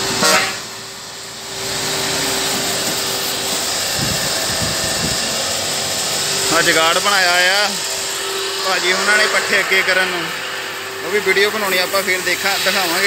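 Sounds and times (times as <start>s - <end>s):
truck horn toot: 0.0s - 0.8s
machine hum: 0.0s - 13.0s
pressure washer spraying hiss: 0.0s - 13.0s.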